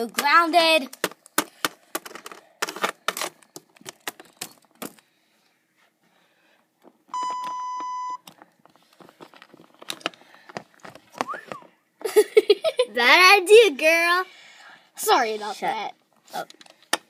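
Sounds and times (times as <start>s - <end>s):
censor bleep: 7.1s - 8.2s.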